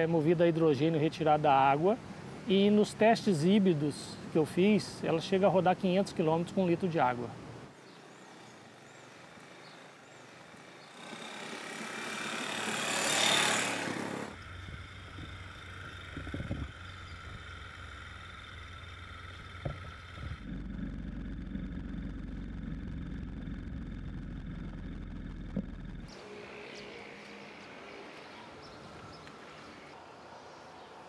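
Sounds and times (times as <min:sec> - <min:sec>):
vehicle passing close: 0:10.6 - 0:28.3
steady low hum: 0:10.9 - 0:26.5.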